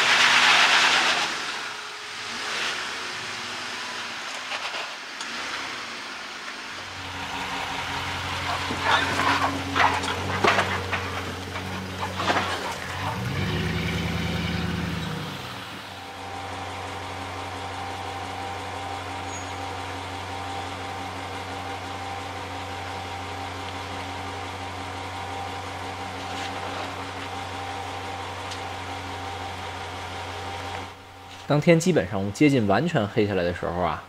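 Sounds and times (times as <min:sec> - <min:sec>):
engine running low and slow: 0:00.0 - 0:31.5
tyres crunching on rock and gravel: 0:07.1 - 0:15.6.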